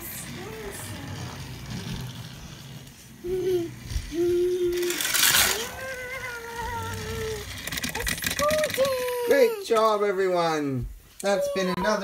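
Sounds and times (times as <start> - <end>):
child making wavering vocal sounds: 0.0 - 1.5, 3.2 - 9.6, 11.2 - 12.0.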